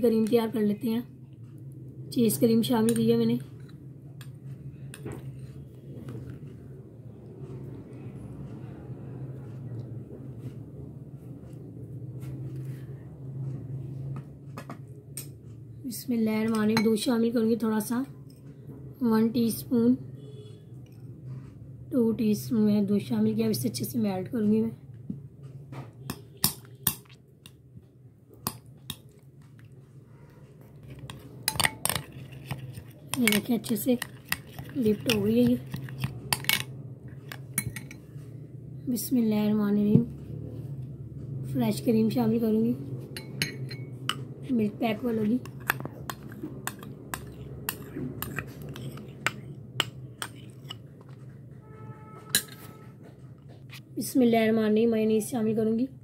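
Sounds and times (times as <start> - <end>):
low steady hum: 0.0 - 56.0
spoon clinking in glass bowl: 31.1 - 36.6, 37.6 - 38.0, 43.2 - 44.2.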